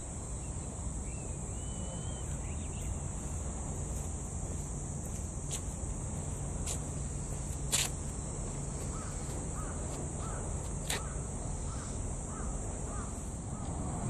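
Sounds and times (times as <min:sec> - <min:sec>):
bird calling: 0:00.0 - 0:03.4, 0:08.8 - 0:13.8
steady low rumble: 0:00.0 - 0:14.0.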